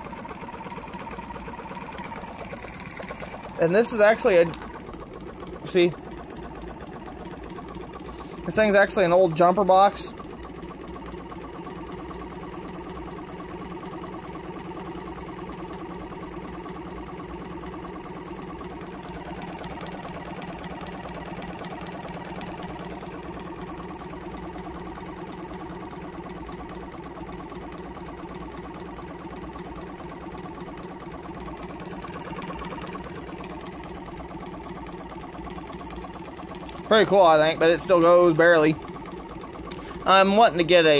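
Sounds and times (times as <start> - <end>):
small air compressor motor pulsing: 0.0 - 40.9.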